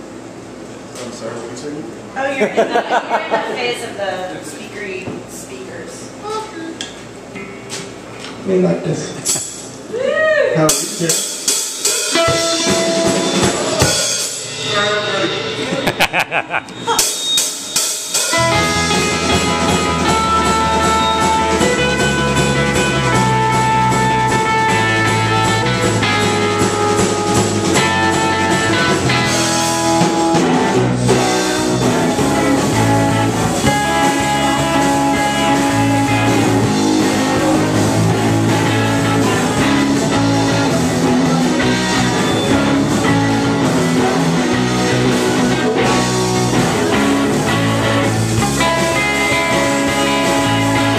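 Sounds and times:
drum hits: 0:10.7 - 0:17.2, 0:18.2 - 0:50.9
live rock band playing: 0:10.7 - 0:50.9.

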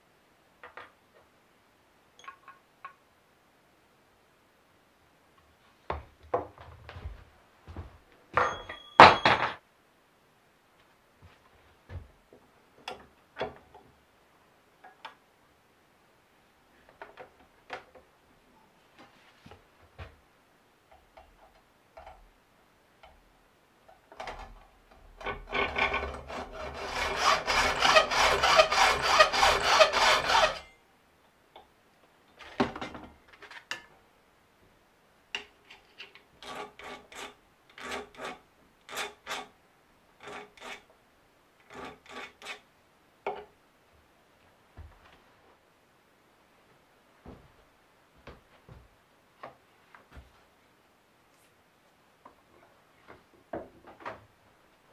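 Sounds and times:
hacksaw cutting metal: 0:25.2 - 0:30.7, 0:36.4 - 0:39.5, 0:40.2 - 0:40.9, 0:41.6 - 0:42.6
hand file rasping on metal: 0:25.2 - 0:30.7, 0:36.4 - 0:39.5, 0:40.2 - 0:40.9.

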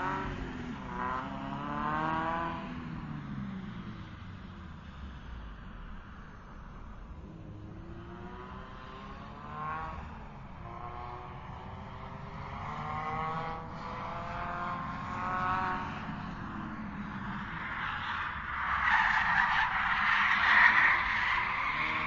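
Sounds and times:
racing car engine revving: 0:00.0 - 0:03.0, 0:07.2 - 0:22.0
tyres skidding: 0:12.2 - 0:22.0.

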